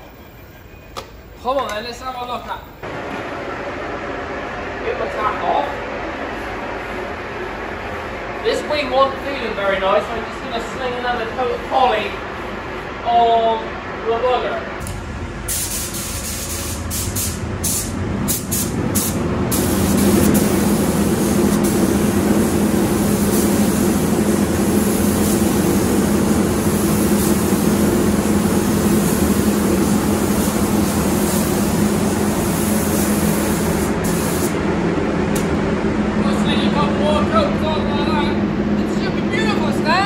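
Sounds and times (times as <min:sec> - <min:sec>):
steady low hum: 0:00.0 - 0:40.0
spray gun hissing: 0:15.5 - 0:34.6.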